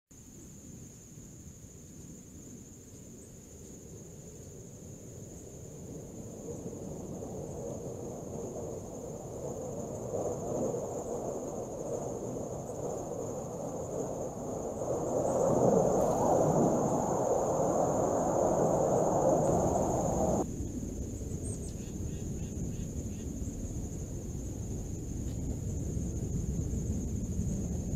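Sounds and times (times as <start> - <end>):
high-pitched insect drone: 7.2 - 20.5
rushing noise: 13.0 - 20.4.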